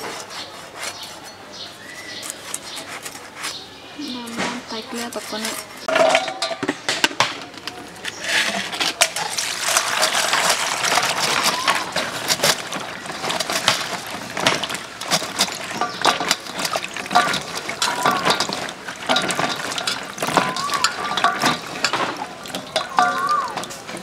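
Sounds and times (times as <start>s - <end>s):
water splashing in bowl: 8.3s - 24.0s.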